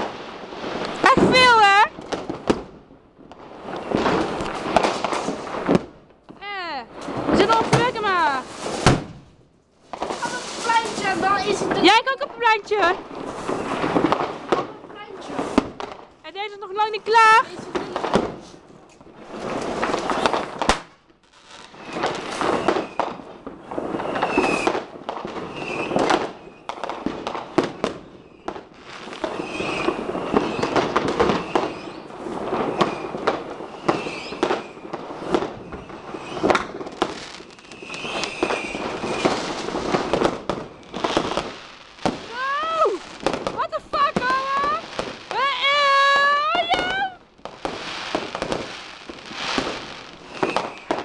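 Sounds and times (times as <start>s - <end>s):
firecracker bangs: 0.0s - 6.0s, 6.9s - 12.1s, 12.7s - 16.1s, 17.2s - 18.6s, 19.3s - 21.0s, 21.7s - 51.0s
crackling rocket bursts: 0.0s - 51.0s
firework whistles: 13.2s - 14.1s, 21.3s - 26.9s, 27.5s - 51.0s.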